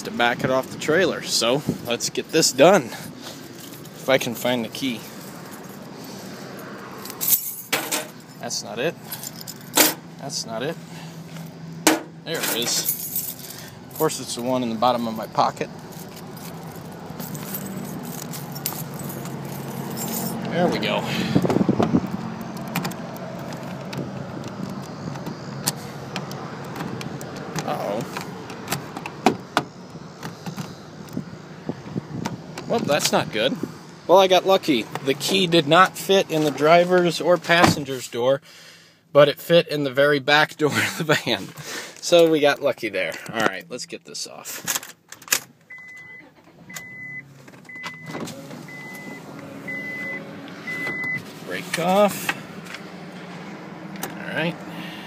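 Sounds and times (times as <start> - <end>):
keys jangling and clicking: 7.0 - 8.2, 9.0 - 10.0, 12.4 - 14.1, 15.9 - 20.5
engine idling hum: 7.1 - 36.5
dashboard warning chime beeping: 45.7 - 51.3.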